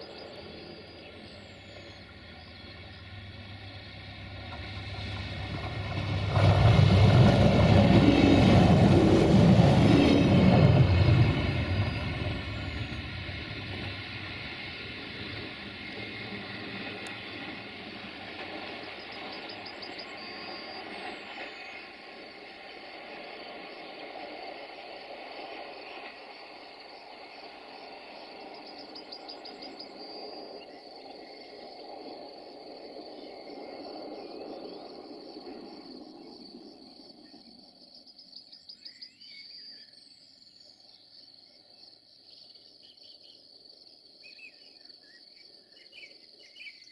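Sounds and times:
train rumble: 0.0s - 39.1s
crickets chirping: 0.0s - 46.9s.

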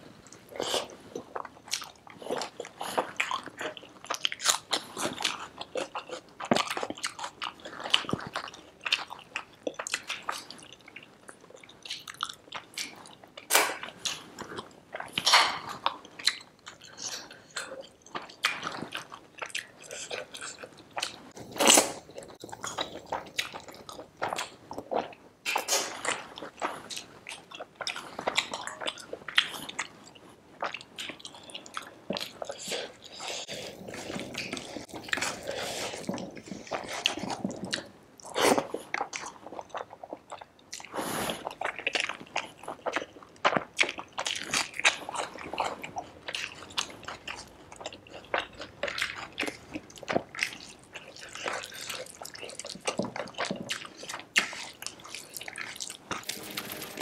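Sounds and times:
person chewing: 0.2s - 57.0s.

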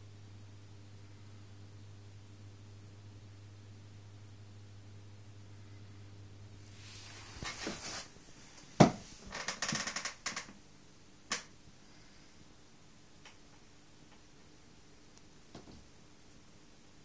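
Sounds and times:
rattle of clicks: 11.3s - 11.5s.

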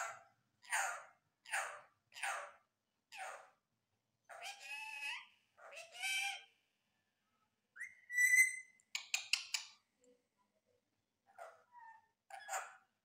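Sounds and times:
parakeet whistle: 7.8s - 8.7s.

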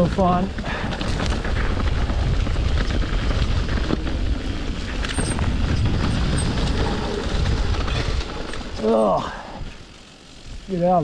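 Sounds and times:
wind on microphone: 0.0s - 8.8s
bike clicks and rattles: 0.0s - 10.7s
bike tyres rumbling through mud: 0.0s - 11.0s.

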